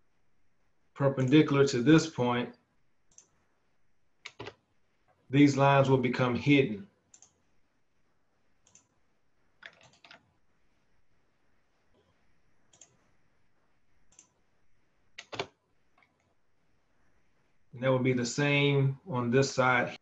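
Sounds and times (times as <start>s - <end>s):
mouse and keyboard clicks: 9.6s - 10.3s.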